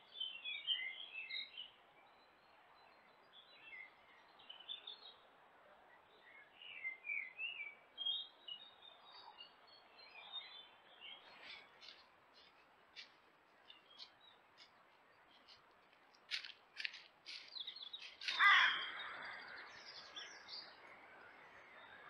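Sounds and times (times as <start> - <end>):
deer footsteps in dry leaves: 11.2 - 18.8
harsh deer call: 18.2 - 19.2.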